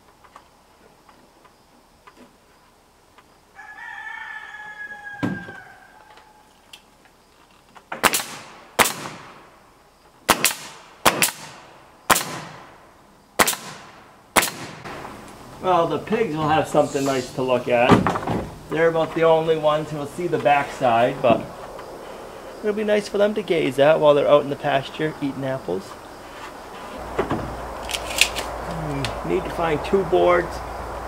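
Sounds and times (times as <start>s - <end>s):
rooster crowing: 3.5s - 6.6s
thump: 5.2s - 5.6s, 17.9s - 18.5s, 27.2s - 27.6s
nail gun firing: 8.0s - 9.4s, 10.3s - 12.6s, 13.4s - 14.9s.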